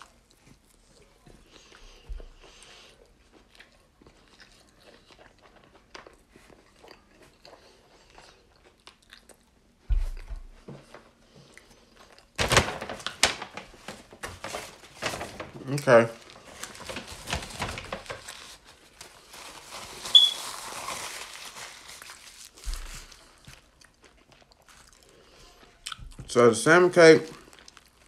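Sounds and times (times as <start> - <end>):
person chewing: 0.0 - 10.3, 11.2 - 12.4, 21.8 - 26.2, 27.4 - 28.0.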